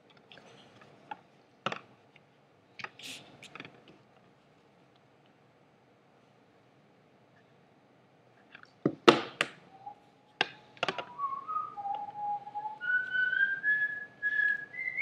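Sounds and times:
person whistling a tune: 9.7s - 10.1s, 10.9s - 15.0s.

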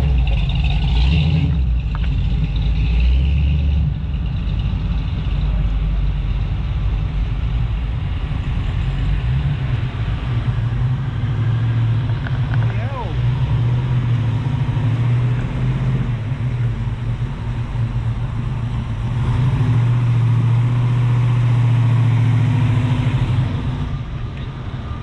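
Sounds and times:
car engine running: 0.0s - 8.6s.

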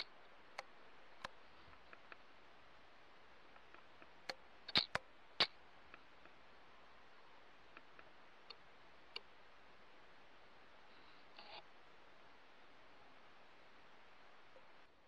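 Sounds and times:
faint steady hiss: 0.0s - 15.0s
sharp clicks: 3.5s - 6.4s.

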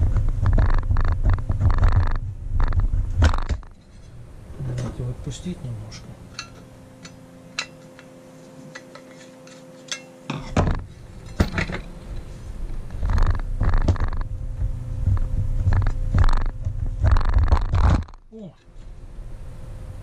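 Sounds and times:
wheel guard clicking and scraping: 6.3s - 12.3s.

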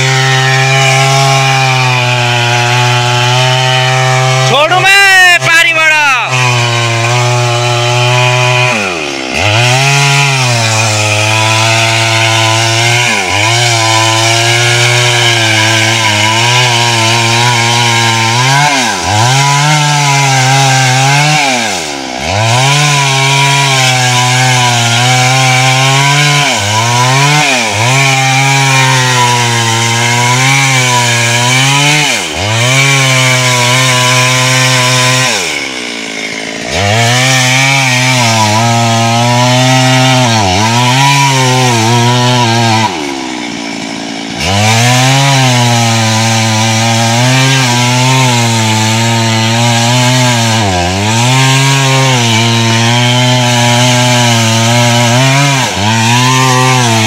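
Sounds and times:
chainsaw cutting tree trunk: 0.0s - 57.0s.

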